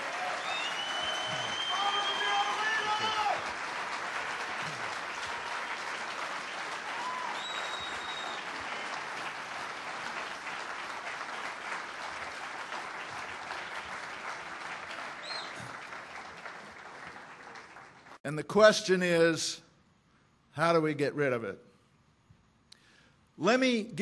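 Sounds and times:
audience applauding: 0.0s - 18.2s.

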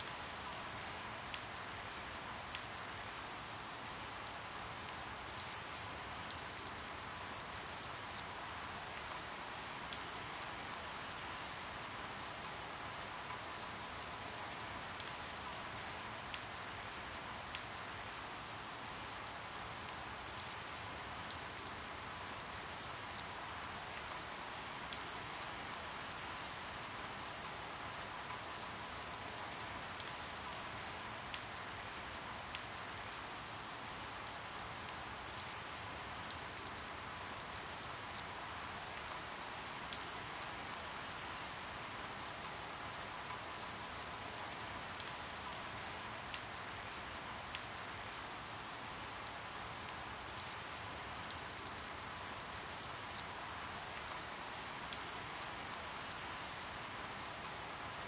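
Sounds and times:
steady rainfall: 0.0s - 58.0s.

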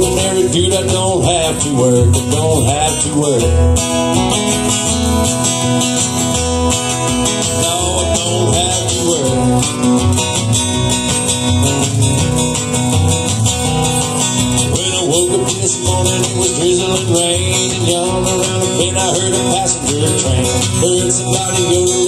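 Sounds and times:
acoustic guitars playing: 0.0s - 22.0s
plucked upright bass: 0.0s - 22.0s.

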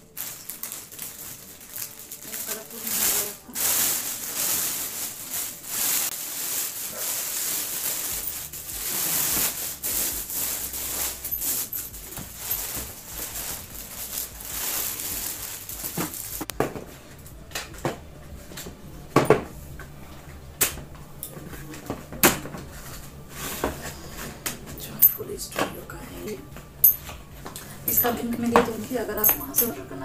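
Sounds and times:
plastic bag crinkling: 0.0s - 16.5s, 27.9s - 29.8s.

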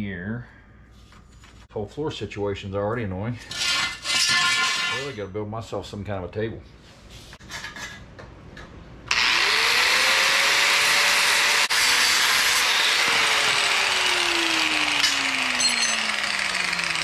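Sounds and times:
angle grinder motor whine: 9.1s - 17.0s
grinder cutting steel: 9.1s - 17.0s.

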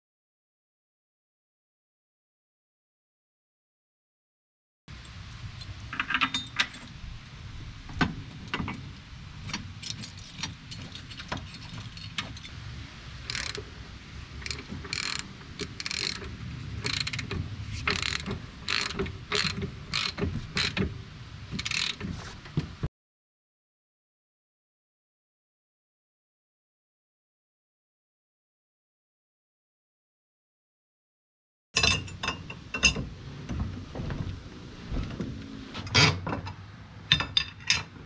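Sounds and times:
metal parts clicking and clacking: 4.9s - 6.9s, 8.0s - 12.5s, 13.3s - 13.6s, 14.4s - 20.9s, 31.8s - 33.0s
steady low rumble: 4.9s - 22.9s, 32.6s - 35.8s.

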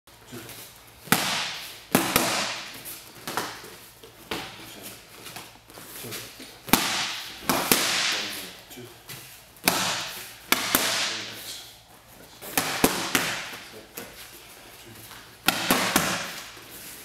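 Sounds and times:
boxing gloves slapping pads: 1.0s - 3.7s, 6.7s - 8.3s, 9.6s - 11.3s, 12.4s - 14.1s, 15.4s - 16.6s.

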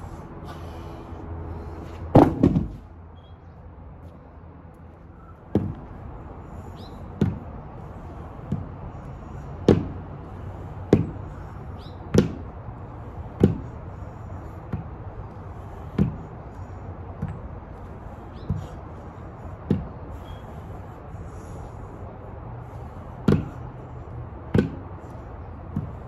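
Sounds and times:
birds chirping faintly: 6.6s - 7.1s, 11.4s - 12.1s, 18.1s - 18.8s.

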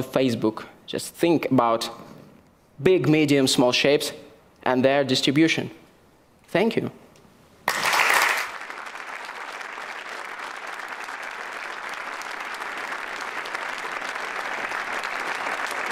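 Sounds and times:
large audience applauding: 7.7s - 15.9s.

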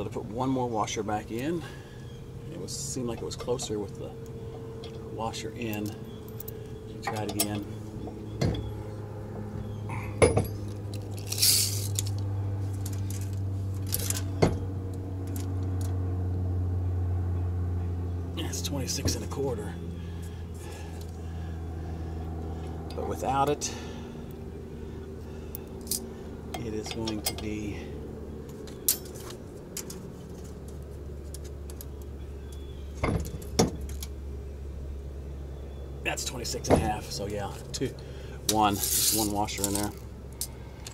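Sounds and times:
steady low hum: 0.0s - 40.9s
tape measure clinking on metal: 11.1s - 12.2s, 38.8s - 40.0s
tape measure rasp: 11.3s - 12.0s.

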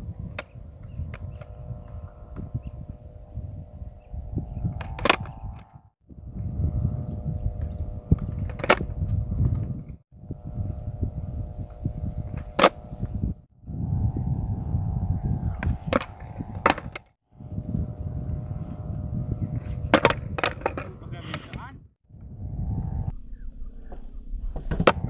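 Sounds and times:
steady low rumble: 0.0s - 25.0s
skateboard popping and slapping: 4.7s - 5.7s, 8.2s - 9.7s, 12.3s - 13.0s, 15.5s - 17.1s, 19.6s - 21.6s, 24.6s - 25.0s.

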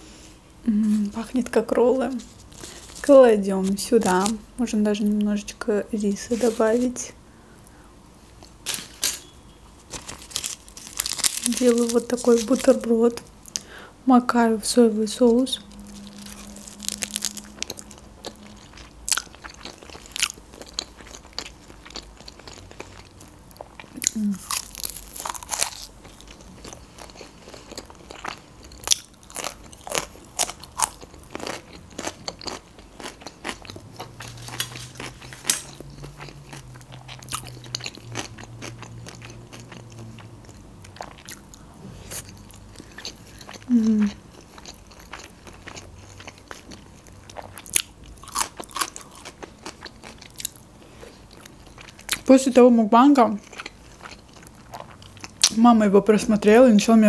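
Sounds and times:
person humming: 0.6s - 1.1s, 43.7s - 44.1s
crunching bites of food: 9.9s - 12.7s, 15.7s - 40.3s, 40.9s - 50.6s
wet chewing: 15.3s - 52.3s.

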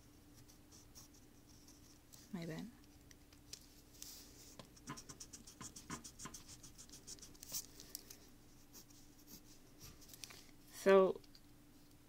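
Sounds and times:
pen scratching on paper: 4.8s - 7.6s.

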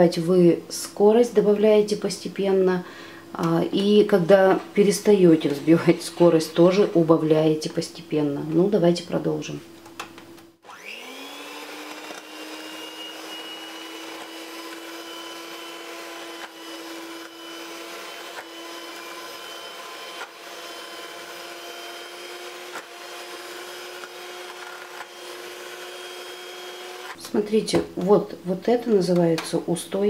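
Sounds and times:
electric mixer motor whine: 10.6s - 27.2s.

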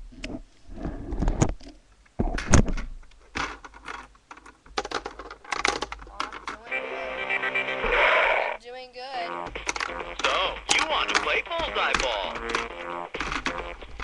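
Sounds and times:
objects being handled: 0.1s - 6.7s, 9.5s - 14.0s.

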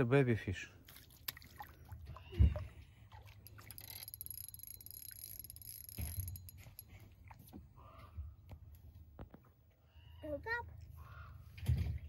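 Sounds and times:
fish splashing in water: 0.8s - 4.3s.

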